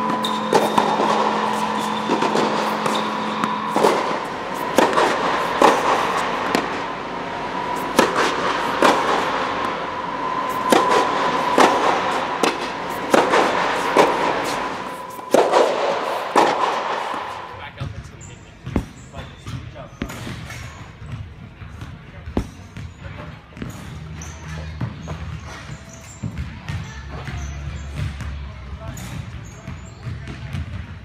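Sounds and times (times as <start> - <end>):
tennis balls struck with rackets: 0.0 - 17.6, 18.6 - 19.2, 20.0 - 21.2, 21.8 - 26.8
steady background hiss: 0.0 - 17.7.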